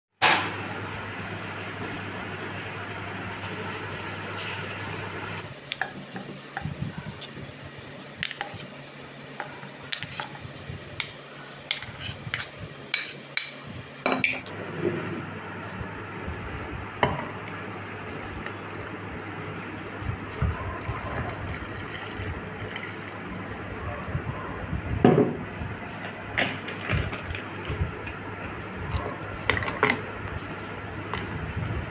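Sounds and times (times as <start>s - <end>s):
spoon scraping a ceramic bowl: 11.7s - 13.5s
milk pouring into a jar: 17.5s - 23.6s.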